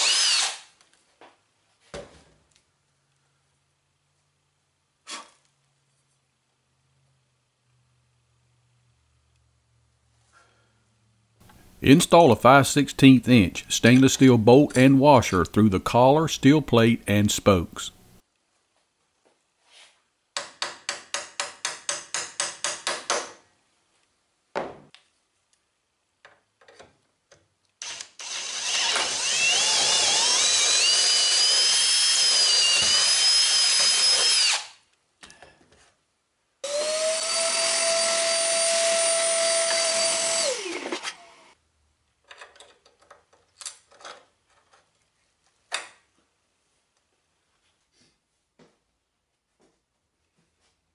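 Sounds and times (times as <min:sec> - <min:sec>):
cordless drill boring wood: 0:00.0 - 0:00.7, 0:27.8 - 0:34.8, 0:36.6 - 0:41.5.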